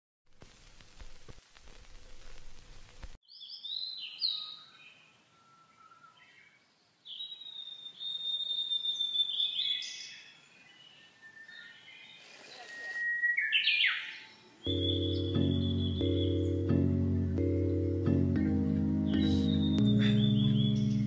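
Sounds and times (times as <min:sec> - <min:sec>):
birds chirping and trilling: 0:03.2 - 0:21.0
bird whistled note: 0:19.2 - 0:21.0.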